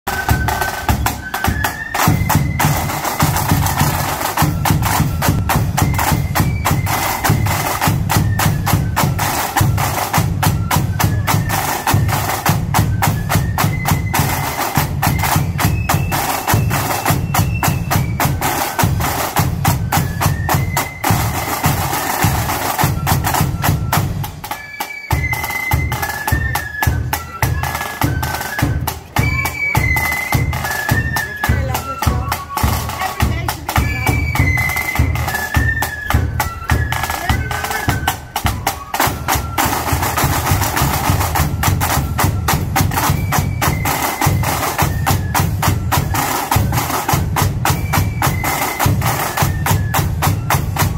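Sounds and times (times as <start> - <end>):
shrill flute melody: 0.1 - 50.9
side-drum rolls and beats: 0.1 - 50.9.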